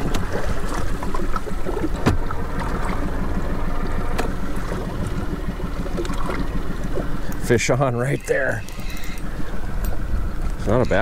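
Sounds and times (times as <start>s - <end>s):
outboard motor running: 0.0s - 11.0s.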